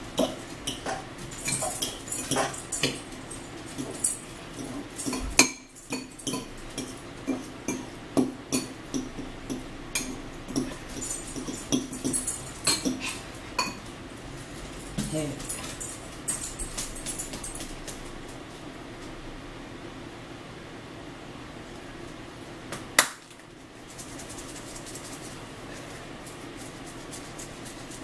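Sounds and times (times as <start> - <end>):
cutlery clicking against bowls: 0.1 - 13.9.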